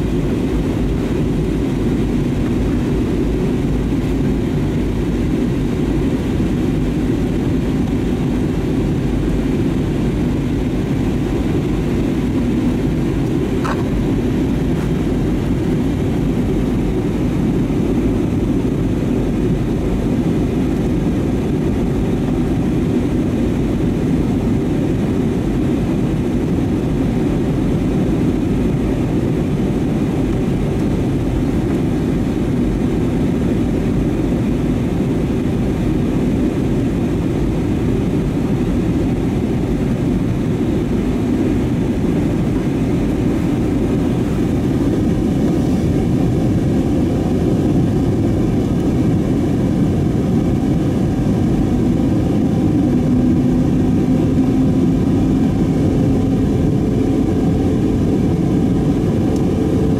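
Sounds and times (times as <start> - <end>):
airliner cabin noise: 0.0 - 59.9.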